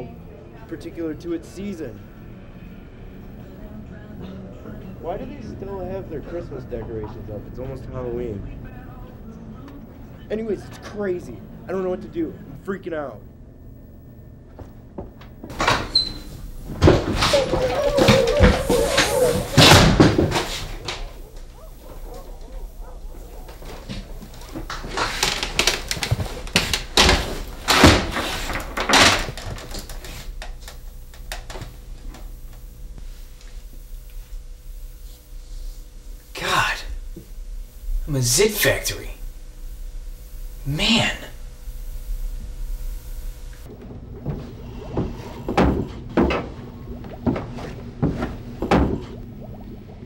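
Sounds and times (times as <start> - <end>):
faint steady hum: 0.0 - 50.0
footsteps on wooden stairs: 16.7 - 28.9, 43.6 - 49.2.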